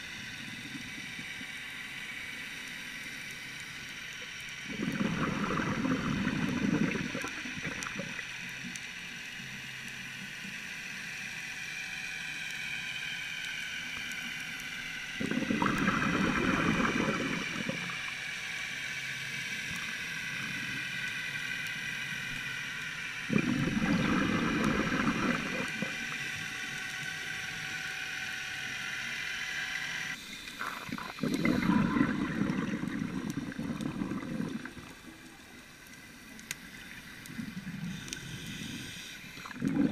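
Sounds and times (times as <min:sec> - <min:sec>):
steady regulator hiss: 0:00.0 - 0:39.9
exhaled breath bubbling underwater: 0:04.6 - 0:08.3, 0:15.2 - 0:18.2, 0:23.3 - 0:26.3, 0:30.5 - 0:35.1, 0:37.2 - 0:39.9.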